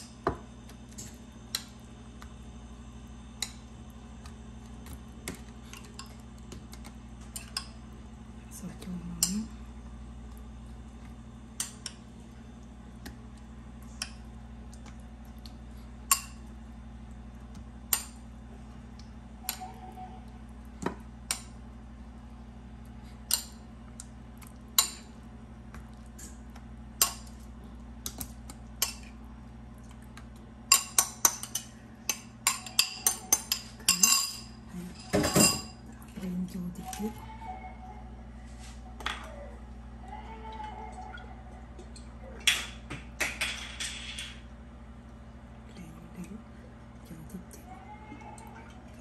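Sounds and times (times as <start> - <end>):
spoon clinking against dishes: 30.7 - 35.8.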